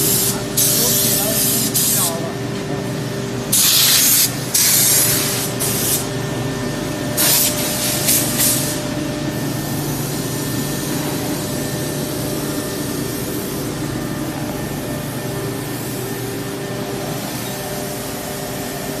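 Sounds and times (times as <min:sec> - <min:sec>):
compressed air hissing: 0:00.0 - 0:02.2, 0:03.5 - 0:06.1, 0:07.1 - 0:11.6
machine humming with tones: 0:04.4 - 0:19.0.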